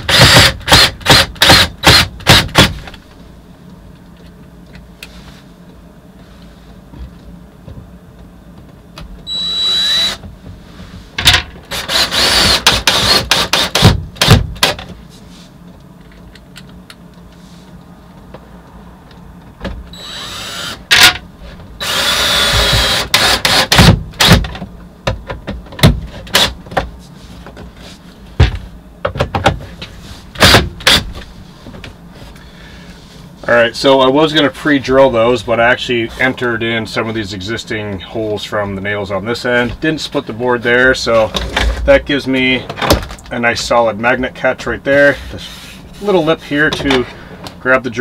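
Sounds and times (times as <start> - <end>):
cordless drill whine: 0.0 - 2.6, 9.3 - 10.2, 11.7 - 13.8, 19.9 - 21.1, 21.8 - 23.8
drill trigger bursts and clicks: 0.0 - 2.7, 9.3 - 10.2, 11.7 - 14.8, 20.0 - 21.2, 21.8 - 24.5.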